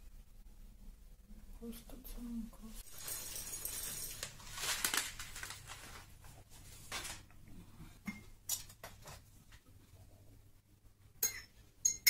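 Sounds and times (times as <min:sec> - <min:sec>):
rustling: 0:02.7 - 0:07.4
glass jars and dishes clinking: 0:11.2 - 0:12.0.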